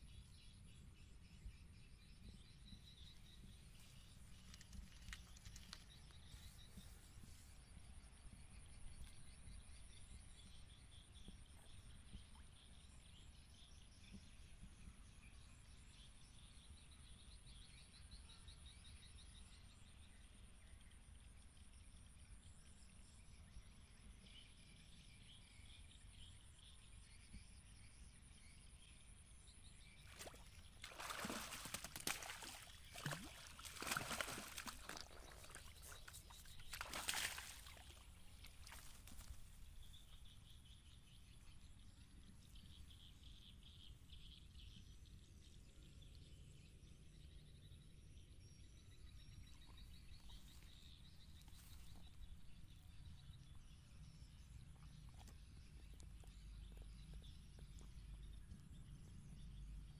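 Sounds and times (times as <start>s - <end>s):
faint high chirping: 30.0s - 45.3s
fish splashing at water surface: 30.1s - 39.3s.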